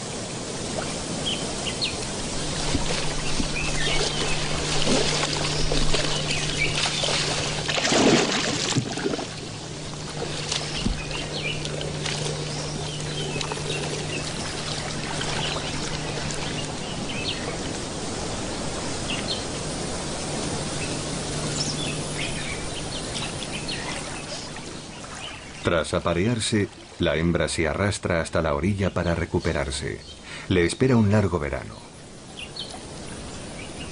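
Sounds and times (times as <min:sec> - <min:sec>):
water splashing and sloshing: 0:00.0 - 0:27.4
birds chirping: 0:00.0 - 0:33.9.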